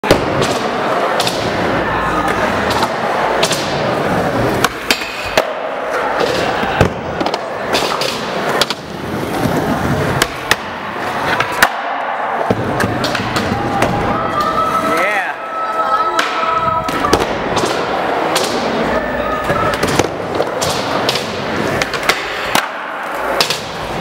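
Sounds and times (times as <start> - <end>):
skateboards clacking: 0.0 - 15.1, 16.0 - 24.0
skateboard wheels rumbling: 0.3 - 4.9, 5.8 - 11.6, 16.6 - 24.0.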